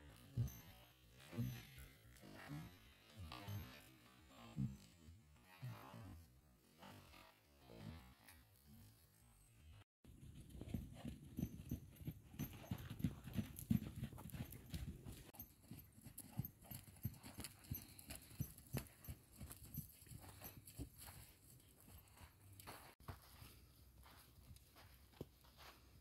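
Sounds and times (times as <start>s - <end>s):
hoofbeats on sand: 10.1s - 26.0s.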